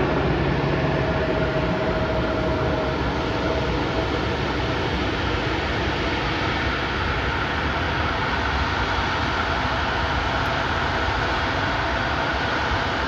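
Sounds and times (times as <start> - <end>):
faint high whine: 0.0 - 9.2
jet engines roaring: 0.0 - 13.0.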